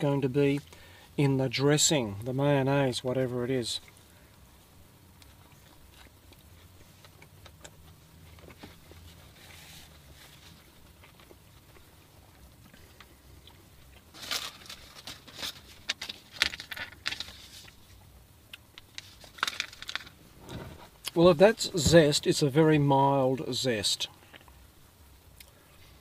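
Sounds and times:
paper wrapping crinkling: 0:14.1 - 0:18.0, 0:18.8 - 0:20.2.

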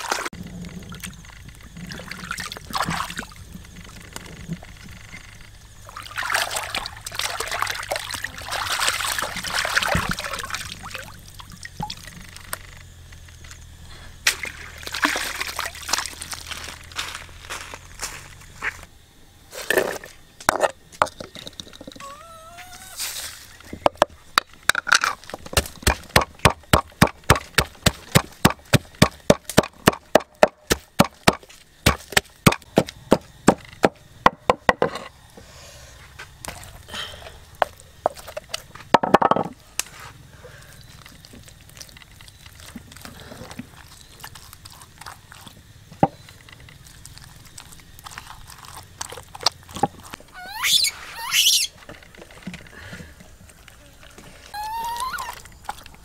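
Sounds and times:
short rising squeaks: 0:22.0 - 0:23.2, 0:50.3 - 0:51.8, 0:54.5 - 0:55.7.

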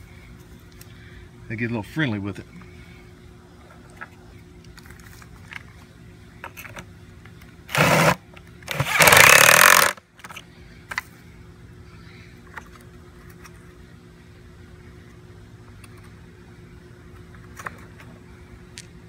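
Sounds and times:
cordless drill driving a bolt: 0:07.7 - 0:10.0.

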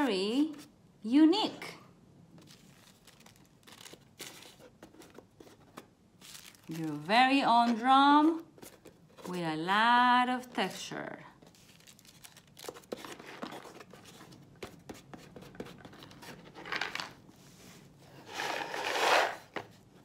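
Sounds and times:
paper crinkling and rustling: 0:02.4 - 0:07.8, 0:11.4 - 0:17.2.

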